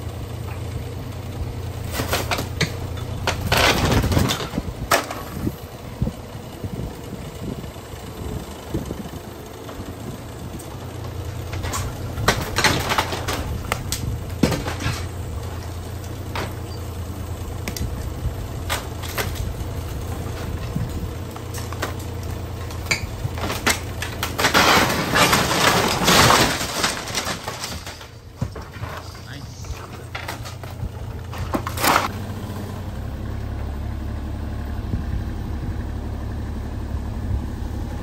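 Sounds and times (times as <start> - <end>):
excavator engine running: 0.0 - 38.0
timber cracking: 1.6 - 5.4, 10.6 - 32.4
crunching and tearing of wall: 1.7 - 5.6, 11.3 - 32.1.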